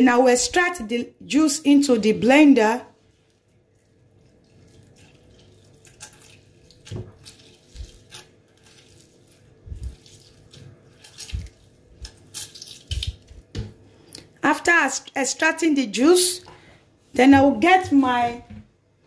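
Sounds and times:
juice trickling and dripping: 2.9s - 14.4s.

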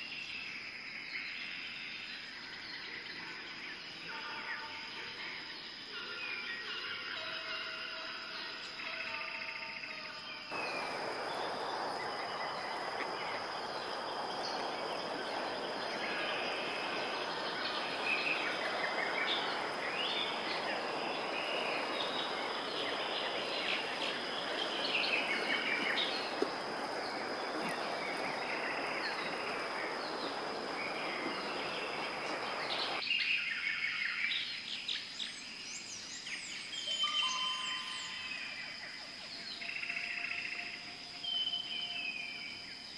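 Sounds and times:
small birds chirping: 10.3s - 39.8s
steady background noise: 10.4s - 33.0s.

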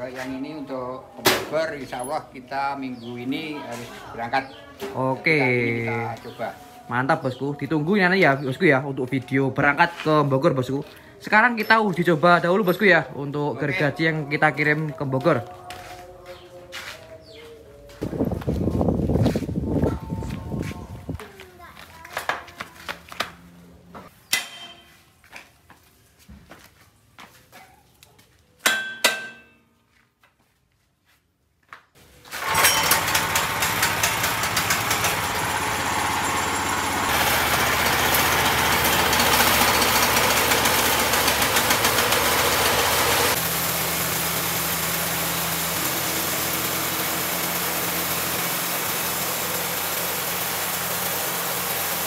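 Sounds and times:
sawmill petrol engine running: 32.3s - 52.0s.

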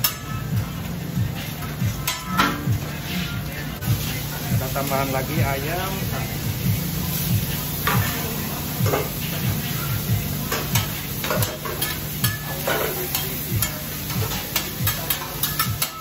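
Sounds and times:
food sizzling on a griddle: 0.0s - 16.0s
metal spatulas scraping and clinking: 10.5s - 16.0s.

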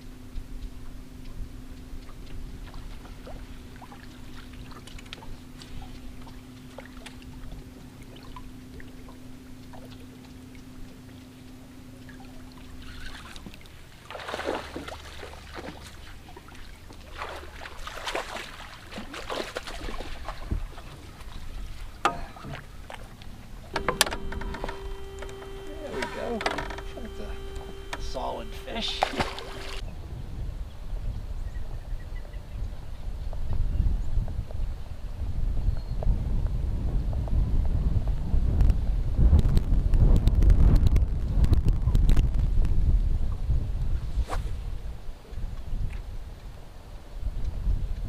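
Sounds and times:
fish splashing at the surface: 12.9s - 16.1s, 17.0s - 20.9s
electric motor humming: 23.6s - 29.8s.

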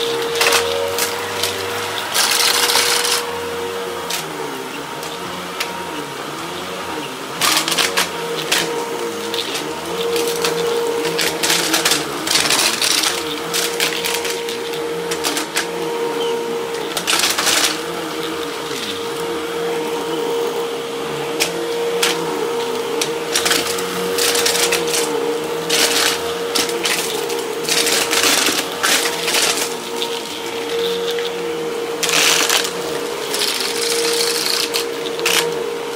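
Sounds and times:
vacuum cleaner motor humming: 0.0s - 35.9s
vacuum sucking up debris: 0.0s - 35.9s.

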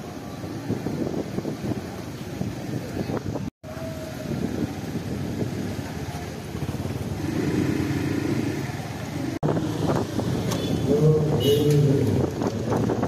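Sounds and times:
wind rumble on microphone: 0.0s - 13.0s
motor scooter passing: 5.9s - 12.8s.

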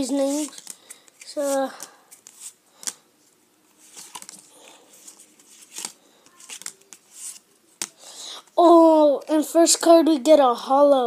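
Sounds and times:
cards rustling: 0.0s - 3.0s, 3.7s - 8.1s
cards flicking: 0.3s - 3.0s, 3.9s - 4.5s, 5.4s - 8.0s.

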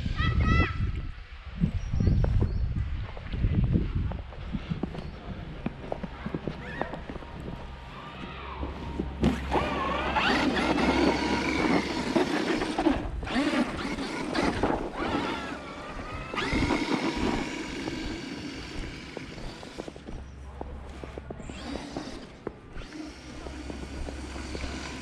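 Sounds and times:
electric motor whining: 8.6s - 20.2s, 21.3s - 25.0s.

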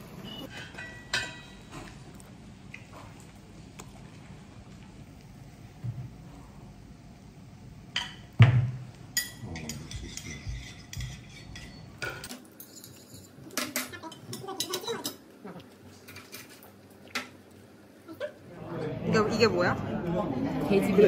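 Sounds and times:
chewing: 1.8s - 5.3s.

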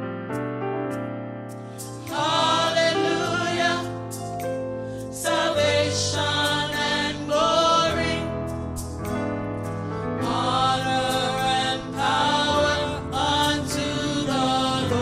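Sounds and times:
vocal group singing in harmony: 1.8s - 8.8s, 10.2s - 15.0s.

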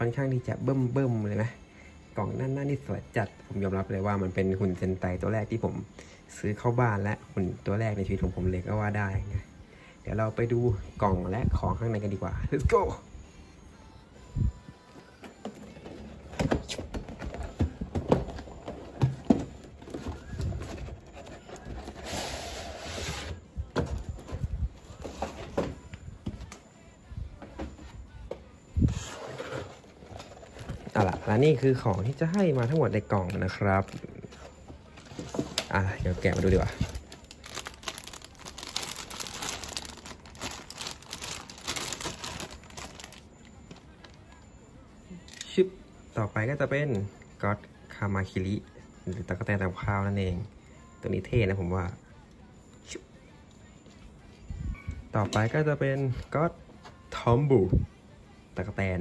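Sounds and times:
plastic bag crinkling: 35.0s - 43.3s.

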